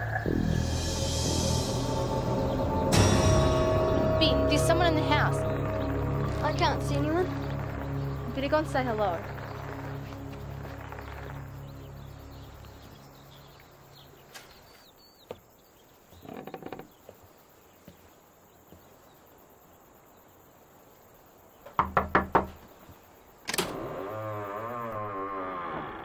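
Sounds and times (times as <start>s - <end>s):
door creaking open: 16.2s - 17.0s, 23.4s - 26.0s
knocks on wooden door: 21.7s - 22.6s.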